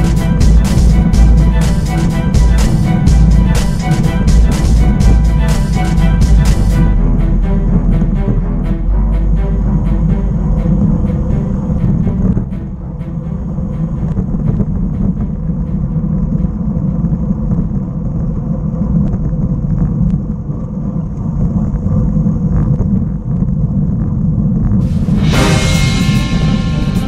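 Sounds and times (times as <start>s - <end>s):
road rumble: 0.0s - 27.0s
wind buffeting: 0.0s - 27.0s.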